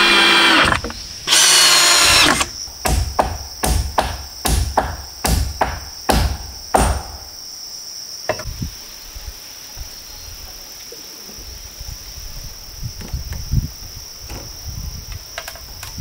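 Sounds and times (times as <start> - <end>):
insects droning: 0.0 - 16.0
hand tool striking wood: 1.6 - 7.2.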